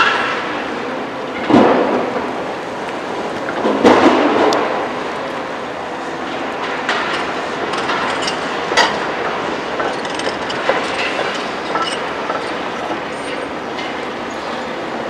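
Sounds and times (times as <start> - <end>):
excavator machine noise: 2.4 - 15.0
clanks of metal and rubble: 6.6 - 14.1.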